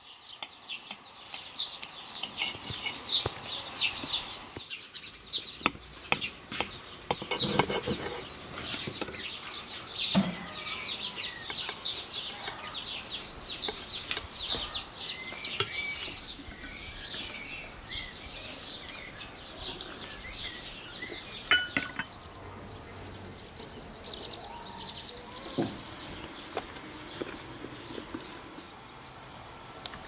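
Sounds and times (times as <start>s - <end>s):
small birds chirping: 0.0s - 30.0s
dishes and cutlery clinking: 2.2s - 3.3s, 6.1s - 9.4s, 21.5s - 22.2s.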